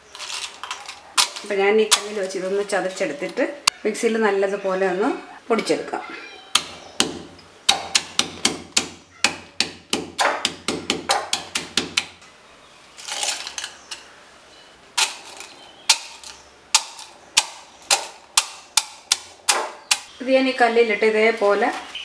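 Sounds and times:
scraping rustle: 0.0s - 3.4s, 12.9s - 14.1s
stone pestle pounding in mortar: 6.6s - 12.1s, 16.8s - 20.1s.

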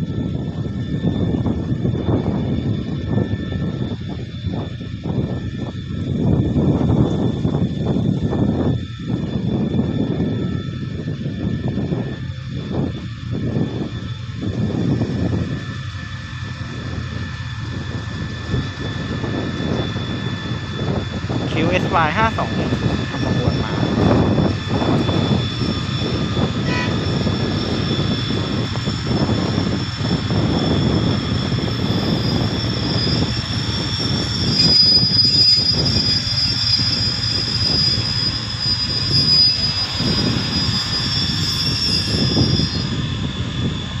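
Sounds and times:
diesel locomotive passing slowly: 0.0s - 44.0s
high steady squeal: 0.0s - 44.0s
train coaches rolling on track: 22.4s - 42.9s.

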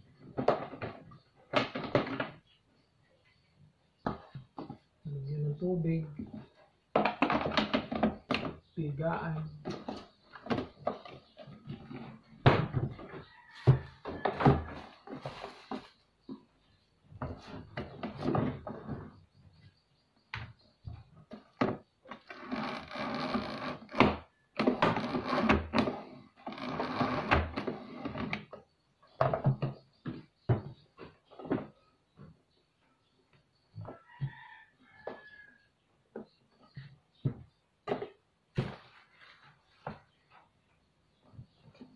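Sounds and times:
plastic bucket parts knocking: 6.1s - 8.7s.

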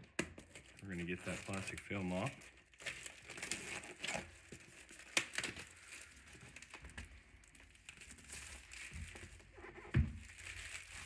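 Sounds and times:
plastic film crinkling: 0.4s - 11.0s.

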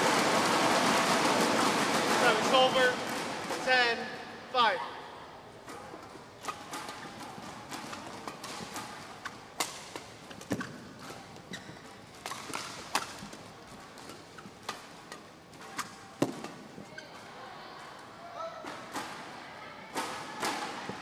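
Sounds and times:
rackets hitting shuttlecock: 5.7s - 16.7s.

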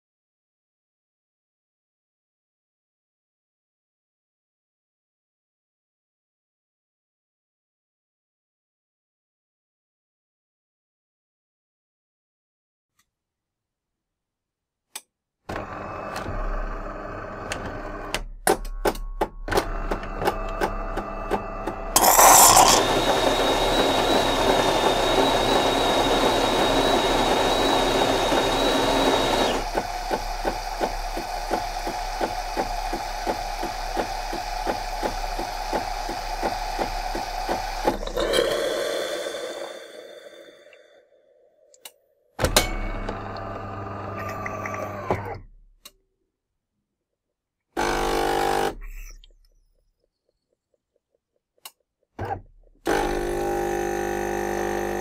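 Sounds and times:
coffee machine whirring and clicking: 15.5s - 18.2s, 19.5s - 40.8s, 42.5s - 45.3s, 52.9s - 55.0s
steam hissing with high whistle: 22.0s - 29.6s, 32.7s - 40.9s.

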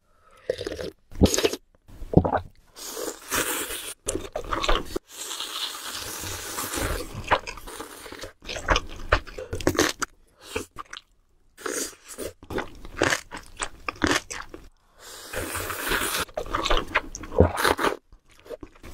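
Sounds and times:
crunching and chewing: 12.1s - 14.7s.

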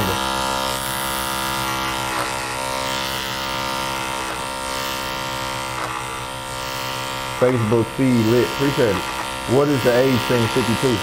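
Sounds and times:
electric hair clipper buzzing: 0.0s - 11.0s.

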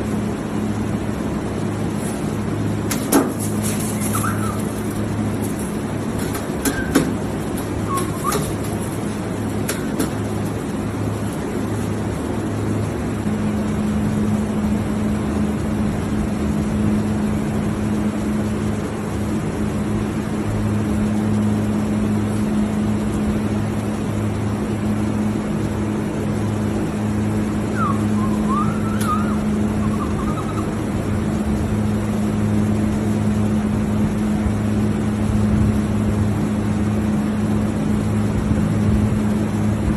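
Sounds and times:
constant rushing noise: 0.0s - 39.9s
low pulsing drone: 0.0s - 39.9s
machinery hum: 0.0s - 39.9s
higher hum: 26.8s - 32.6s
penguin chick peeping: 27.8s - 30.8s.

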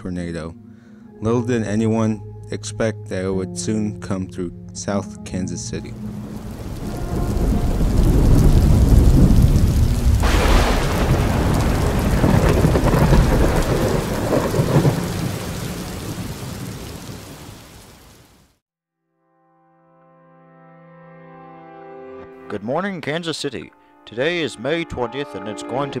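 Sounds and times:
heavy rain: 6.0s - 18.6s
rumbling thunder: 6.2s - 17.8s
sharp crash of thunder: 6.6s - 16.4s.

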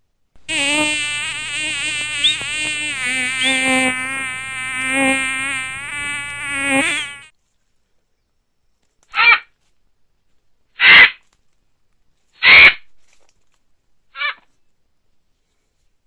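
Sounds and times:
fly buzzing: 0.4s - 7.3s.

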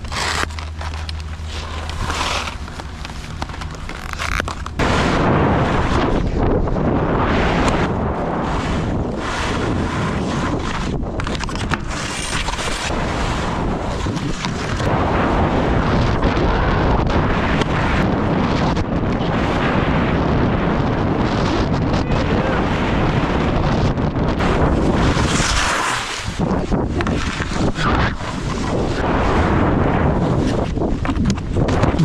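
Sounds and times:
skis scraping over snow: 0.0s - 15.3s, 24.4s - 32.0s
wind buffeting microphone: 0.0s - 32.0s.

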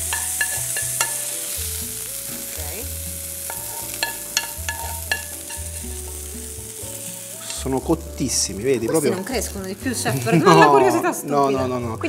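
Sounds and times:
metal spoon scraping a pan: 0.0s - 1.7s, 3.4s - 6.3s
hot oil sizzling: 0.0s - 12.0s.

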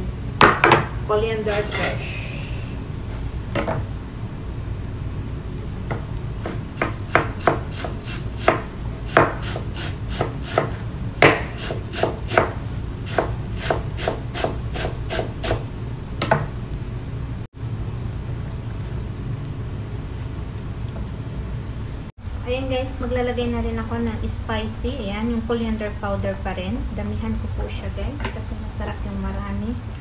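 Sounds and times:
low hum: 0.0s - 7.1s, 14.6s - 30.0s
knife chopping on wooden board: 5.9s - 9.6s, 10.2s - 15.6s.

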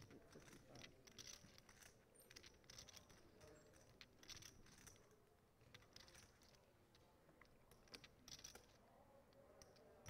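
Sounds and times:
poker chips clicking: 0.0s - 5.0s, 5.7s - 6.6s.

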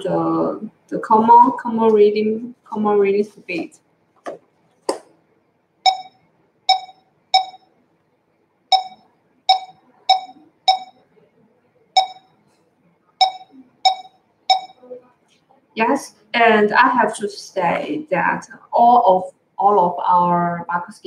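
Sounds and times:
barcode scanner beeps: 5.9s - 7.7s, 8.7s - 11.0s, 12.0s - 12.3s, 13.2s - 14.8s.

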